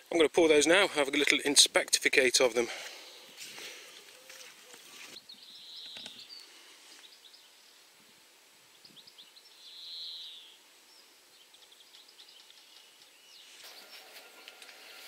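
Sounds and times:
birds chirping: 0:02.5 - 0:07.8, 0:08.7 - 0:15.0.

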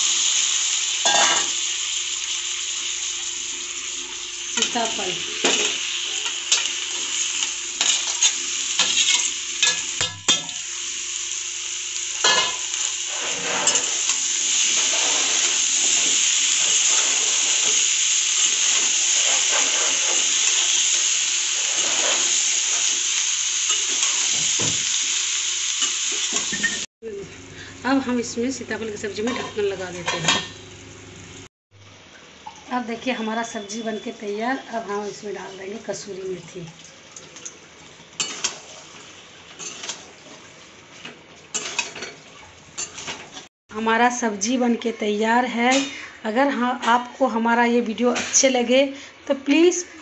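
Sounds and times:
vegetables sizzling in hot oil: 0:00.0 - 0:36.6, 0:37.6 - 0:46.6
metal spatula scraping a pan: 0:12.3 - 0:17.8, 0:18.7 - 0:20.7, 0:38.2 - 0:38.7, 0:39.6 - 0:40.1, 0:41.5 - 0:42.1.

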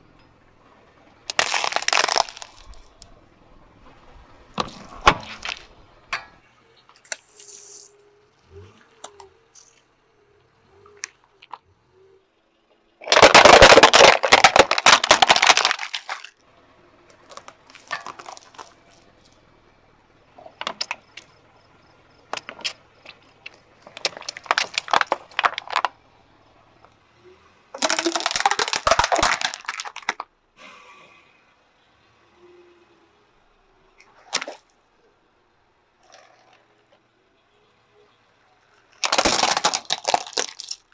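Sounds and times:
tyre crushing plastic bottles: 0:01.3 - 0:03.0, 0:13.0 - 0:16.4, 0:17.1 - 0:18.8, 0:23.8 - 0:26.0, 0:27.8 - 0:30.3, 0:38.9 - 0:40.9.

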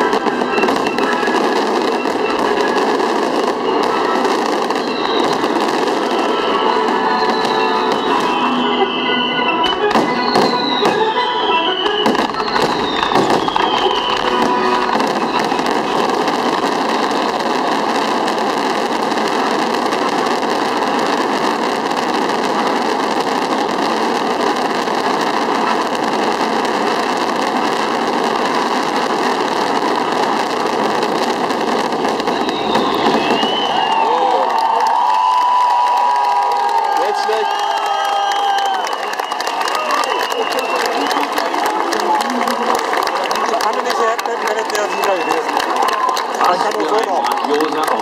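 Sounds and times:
music: 0:00.0 - 0:17.7
fireworks crackling: 0:00.0 - 0:48.0.

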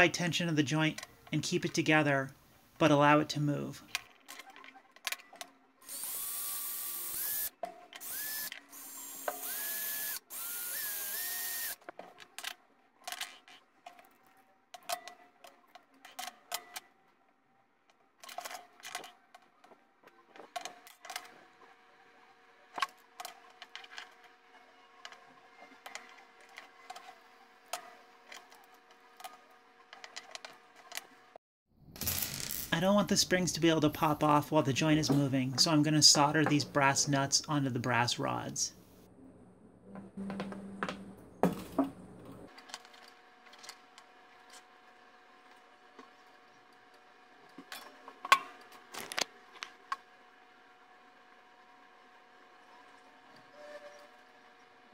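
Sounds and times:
power drill whining: 0:05.8 - 0:11.8.

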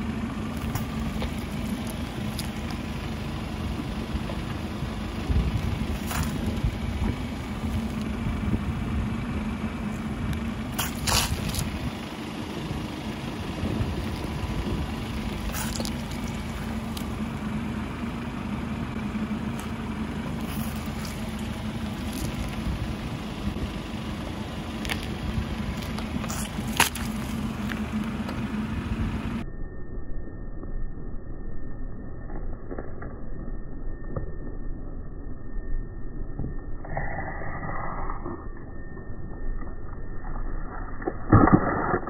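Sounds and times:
car engine idling: 0:00.0 - 0:29.4
objects cracking under tyre: 0:05.5 - 0:08.2, 0:10.7 - 0:11.9, 0:13.9 - 0:17.2, 0:20.4 - 0:22.9, 0:24.7 - 0:28.4, 0:39.6 - 0:42.0.

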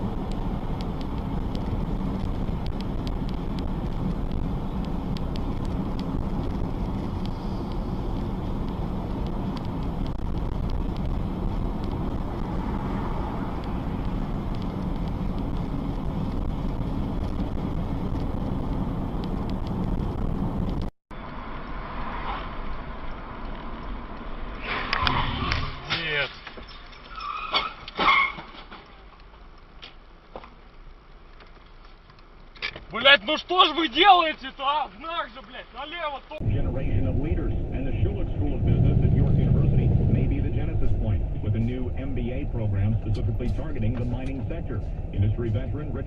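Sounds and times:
car road noise from inside: 0:00.0 - 0:26.2, 0:35.7 - 0:46.0.

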